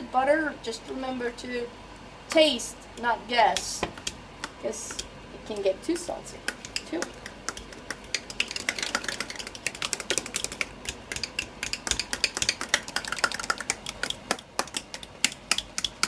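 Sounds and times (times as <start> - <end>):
potato masher clacking on pot: 6.4 - 16.0.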